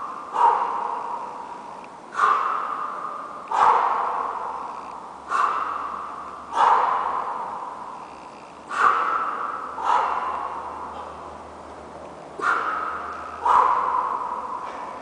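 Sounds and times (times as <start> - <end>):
man exhaling sharply: 2.1 - 3.2.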